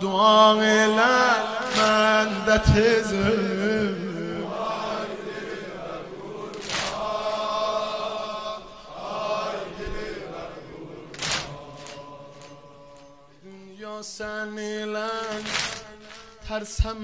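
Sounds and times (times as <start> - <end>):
crowd of men chanting: 0.4 - 13.4.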